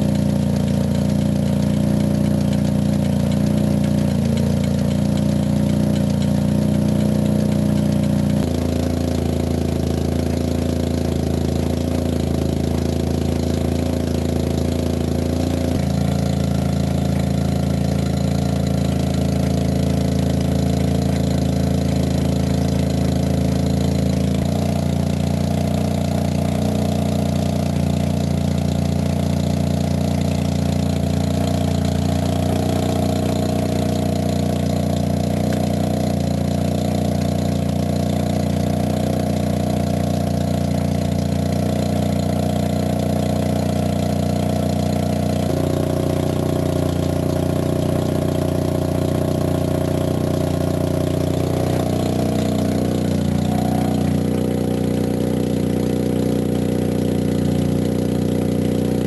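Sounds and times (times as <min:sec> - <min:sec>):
car engine running: 0:00.0 - 0:59.0.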